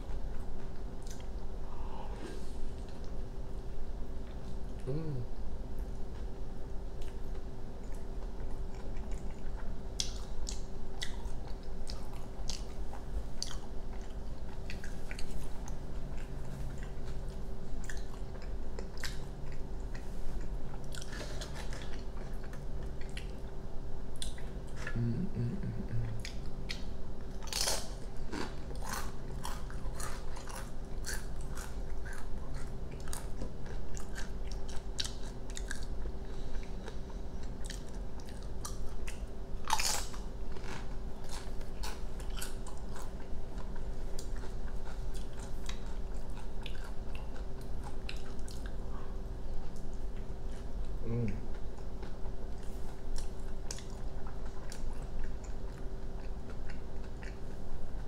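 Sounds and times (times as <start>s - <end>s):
crunchy bite: 27.4s - 33.3s, 39.6s - 43.1s.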